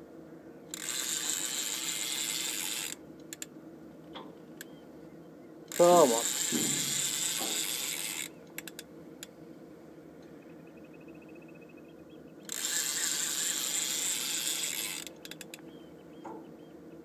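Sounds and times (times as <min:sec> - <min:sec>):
fishing reel whirring: 0:00.7 - 0:03.5, 0:05.7 - 0:08.8, 0:12.5 - 0:15.5
reel ticking: 0:00.7 - 0:03.5, 0:05.7 - 0:08.8, 0:12.5 - 0:15.6
sharp clicks: 0:08.5 - 0:09.3, 0:15.0 - 0:15.7.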